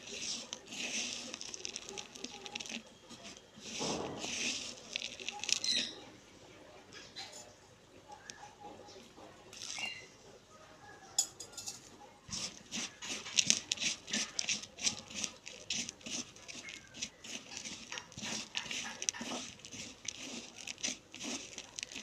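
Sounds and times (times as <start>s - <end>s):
gritty crunching and squishing: 0.0s - 6.1s, 12.3s - 22.0s.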